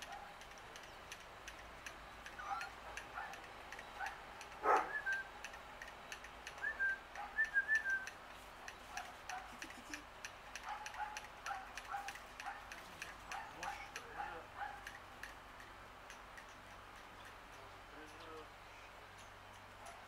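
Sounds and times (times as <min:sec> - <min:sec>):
steady fast ticking: 0:00.0 - 0:20.0
whistled bird chirps: 0:04.8 - 0:05.3, 0:06.6 - 0:08.2.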